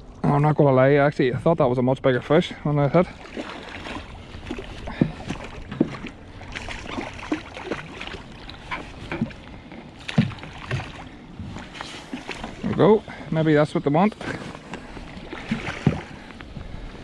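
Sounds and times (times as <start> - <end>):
water lapping against boat: 0.0 - 17.0
water splashes: 0.0 - 17.0.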